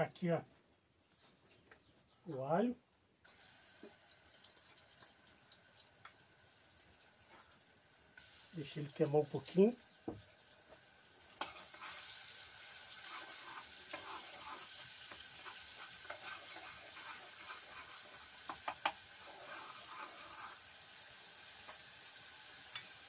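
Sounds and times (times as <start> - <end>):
garlic sizzling in lard: 3.2 - 23.0
utensil scraping pan: 11.4 - 20.8.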